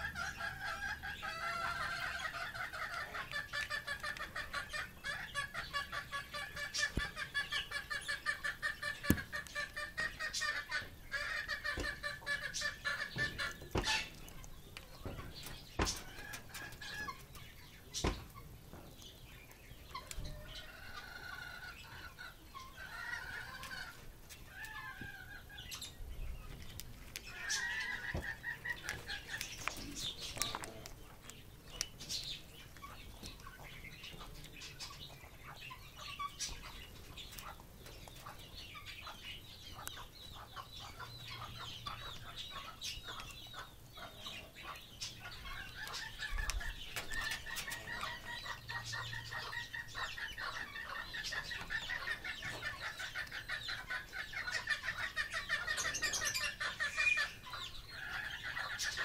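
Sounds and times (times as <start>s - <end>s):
parrots clucking chatter: 0.0s - 59.0s
beak clicks on food and bowl: 2.3s - 7.5s, 23.6s - 35.5s, 36.2s - 50.6s.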